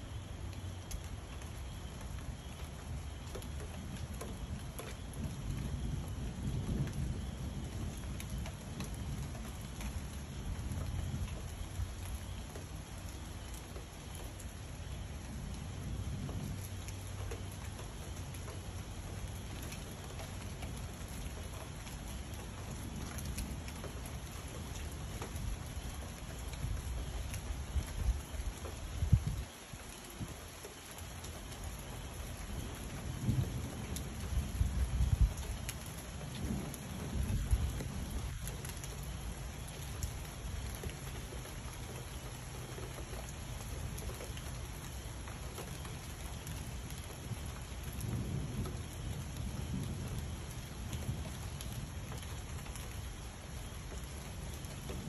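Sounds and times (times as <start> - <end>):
steady rain falling: 0.0 - 55.0
low rolling thunder: 3.7 - 12.4, 15.0 - 30.3, 31.9 - 41.6, 44.7 - 55.0.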